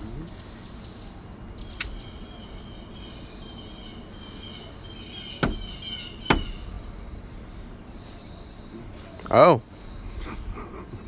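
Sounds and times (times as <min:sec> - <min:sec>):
birds chirping: 0:00.0 - 0:11.0
small click: 0:01.8 - 0:02.0
sharp knock: 0:05.4 - 0:05.7, 0:06.3 - 0:06.5.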